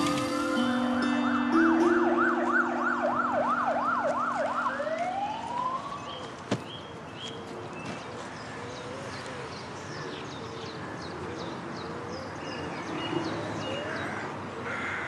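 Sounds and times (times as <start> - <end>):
low held music notes: 0.0 - 6.1
siren wailing: 0.0 - 6.4.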